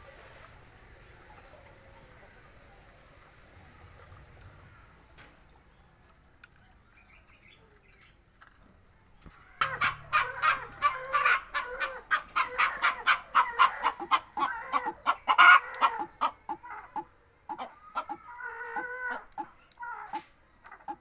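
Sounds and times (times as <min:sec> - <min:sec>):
chicken clucking: 0:09.6 - 0:21.0.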